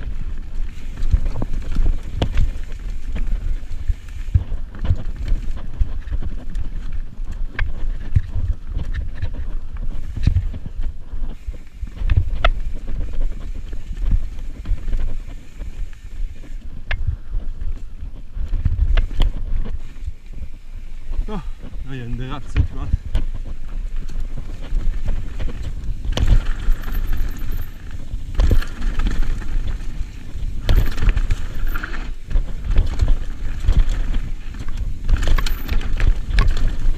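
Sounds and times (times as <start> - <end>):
bike clicks and rattles: 0.0 - 36.9
wind buffeting microphone: 0.0 - 36.9.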